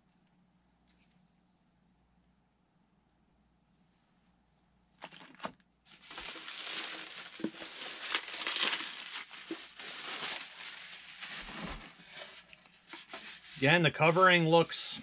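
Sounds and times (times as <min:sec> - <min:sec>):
plastic bag crinkling: 0:05.0 - 0:12.5.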